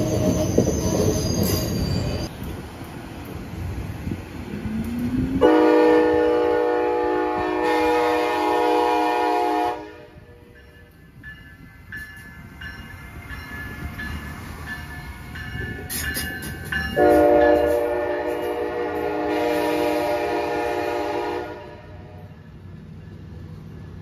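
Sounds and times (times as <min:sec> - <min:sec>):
train horn chord: 0:05.4 - 0:10.6, 0:17.0 - 0:22.4
train wheels clicking: 0:10.5 - 0:20.2.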